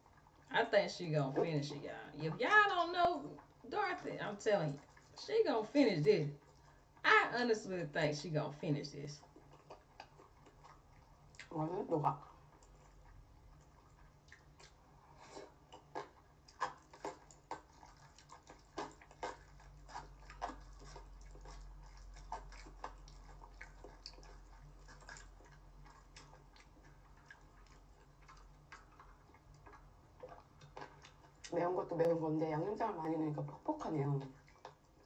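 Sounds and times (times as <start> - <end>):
low steady hum: 0.0 - 35.0
person chewing noodles: 4.8 - 5.2, 9.2 - 11.5, 12.2 - 31.6, 34.2 - 35.0.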